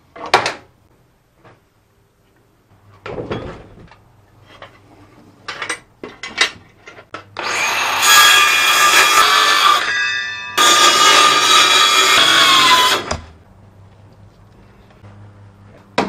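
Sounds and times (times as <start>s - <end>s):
metal square scraping on wood: 8.0s - 13.1s.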